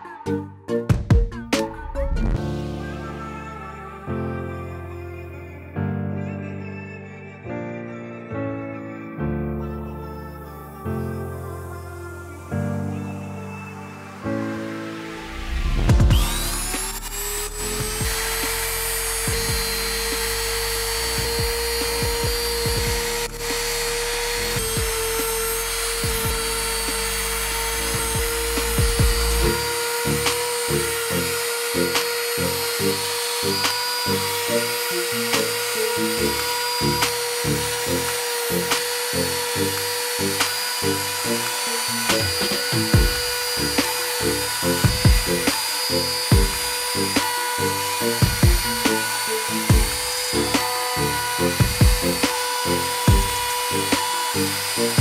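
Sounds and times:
background music with a beat: 0:00.0 - 0:04.0, 0:14.2 - 0:20.4, 0:21.0 - 0:23.4, 0:24.6 - 0:27.0, 0:27.8 - 0:30.6, 0:41.4 - 0:55.0
router motor whining: 0:10.3 - 0:55.0.

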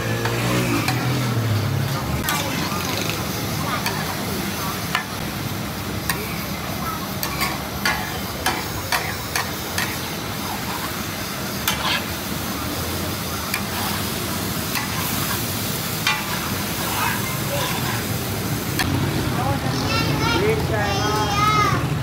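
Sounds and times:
meat sizzling in oil: 0:00.0 - 0:20.4
metal spatula clinking on griddle: 0:07.2 - 0:10.0, 0:16.0 - 0:18.0.

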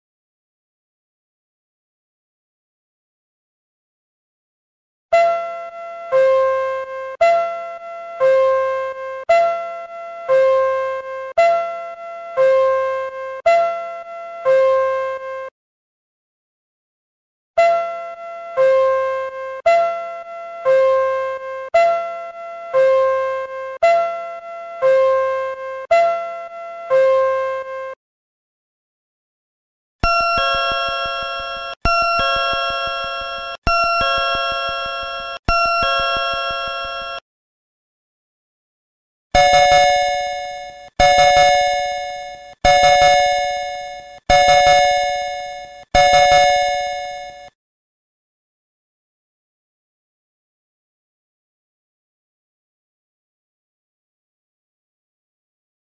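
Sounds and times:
electronic two-tone door chime: 0:30.0 - 0:37.2, 0:39.4 - 0:47.5
two-note falling electronic chime: 0:30.0 - 0:37.2.

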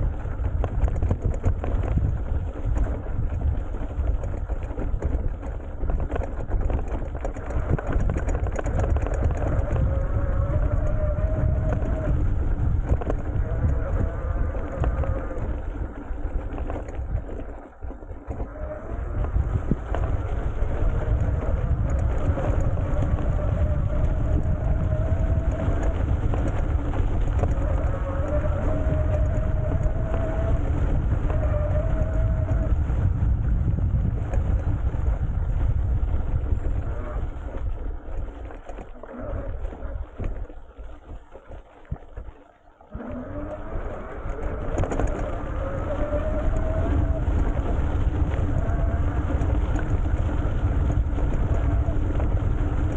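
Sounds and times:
faint electric motor whine: 0:00.0 - 0:52.9
tyres rumbling on stubble: 0:00.0 - 0:52.9
wind buffeting microphone: 0:00.0 - 0:52.9.

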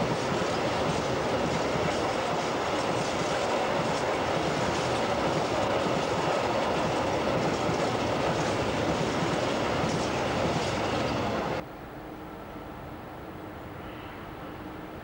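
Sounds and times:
freight train wheels rumbling: 0:00.0 - 0:11.6.

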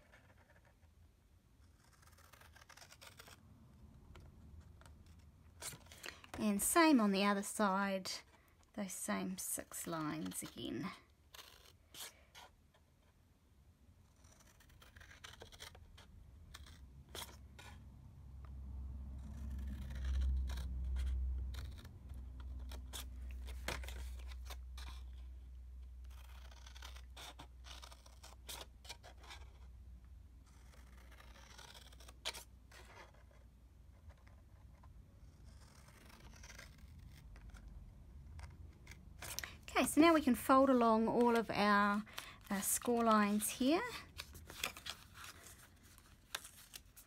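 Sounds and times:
papery scraping: 0:01.6 - 0:03.5, 0:09.6 - 0:12.8, 0:19.2 - 0:29.7, 0:34.0 - 0:47.0.

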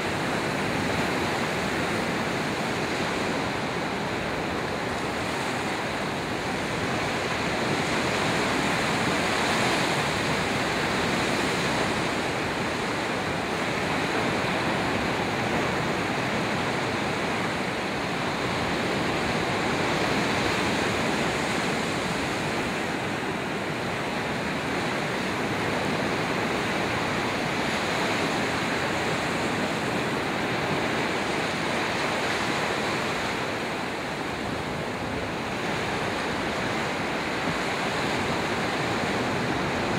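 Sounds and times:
small waves breaking: 0:00.0 - 0:39.9.

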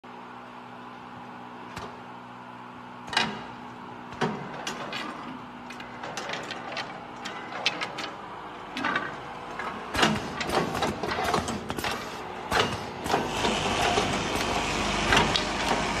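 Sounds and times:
machine motor hum: 0:00.1 - 0:16.0
mechanism clacks and knocks: 0:03.0 - 0:14.5.

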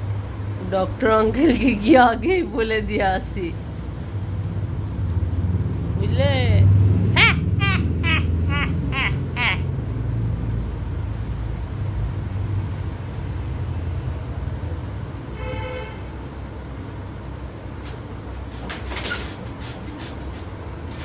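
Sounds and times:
street traffic rumble: 0:00.0 - 0:21.0
vehicle horn toot: 0:15.4 - 0:16.1.

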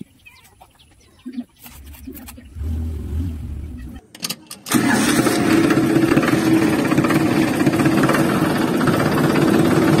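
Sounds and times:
diesel tractor engine chugging: 0:04.7 - 0:10.0.

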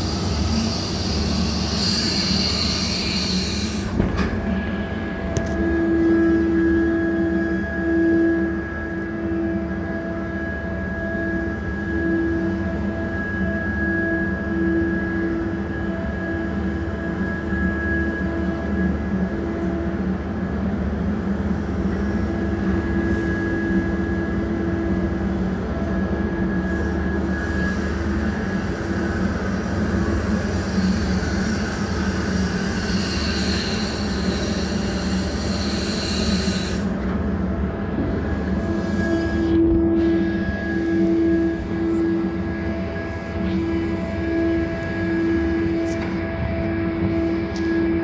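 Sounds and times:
hydraulic hiss: 0:00.0 - 0:04.0, 0:26.6 - 0:37.0
crane machine hum with whine: 0:00.0 - 0:48.0.

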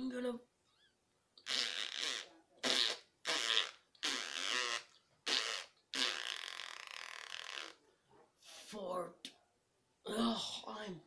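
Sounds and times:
mouth raspberry fart noises: 0:01.4 - 0:07.8.

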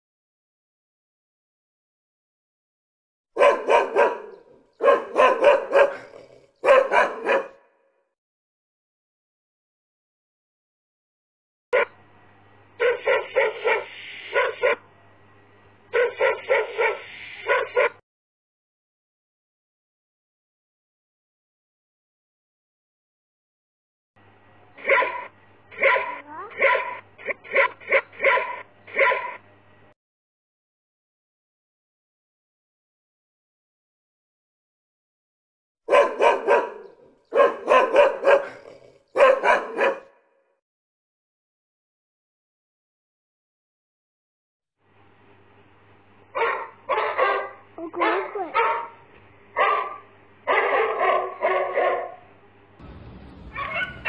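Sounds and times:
dog barking: 0:03.4 - 0:07.9, 0:12.8 - 0:14.9, 0:15.9 - 0:18.0, 0:24.8 - 0:29.4, 0:35.9 - 0:40.3, 0:46.4 - 0:49.0, 0:49.6 - 0:52.3, 0:53.5 - 0:54.0.

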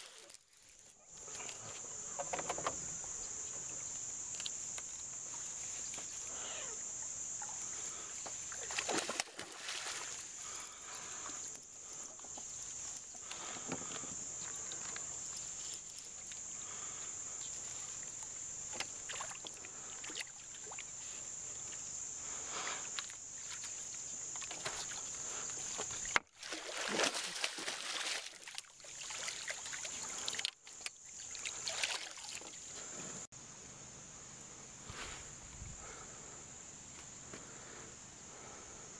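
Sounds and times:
high-pitched insect chorus: 0:00.0 - 0:38.9
lure splashing on water: 0:08.5 - 0:10.3, 0:25.8 - 0:32.7.

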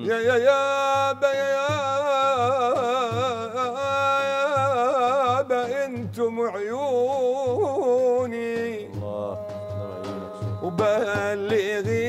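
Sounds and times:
frame drums beating: 0:00.0 - 0:12.0
man singing ornamented melody: 0:00.0 - 0:12.0.

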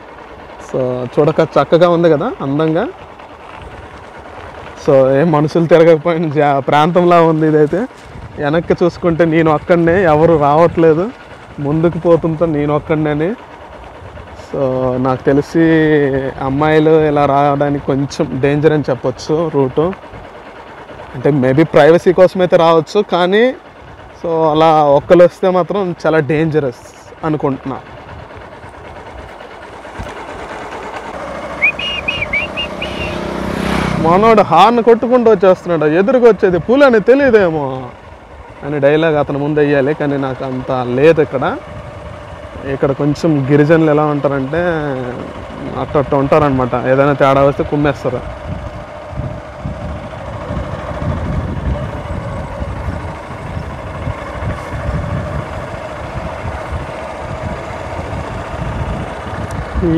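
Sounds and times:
motorcycle engine: 0:00.0 - 0:59.9
wind on microphone: 0:48.4 - 0:59.9.

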